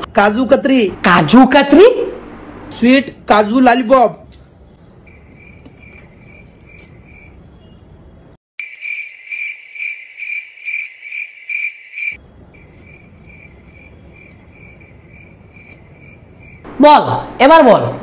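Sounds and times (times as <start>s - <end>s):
cricket chirping: 5.0s - 7.4s, 8.6s - 16.7s.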